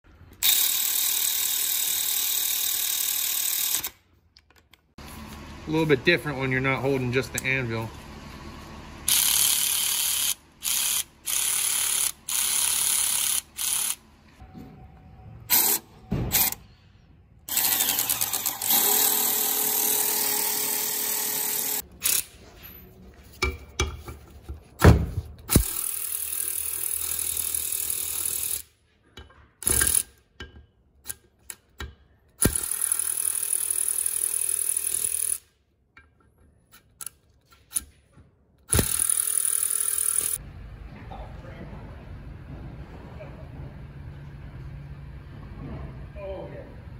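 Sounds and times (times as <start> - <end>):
cordless ratchet motor whirring: 0.4 - 4.0, 9.1 - 14.0, 17.5 - 22.3, 25.5 - 28.6, 32.4 - 35.5, 38.7 - 40.4.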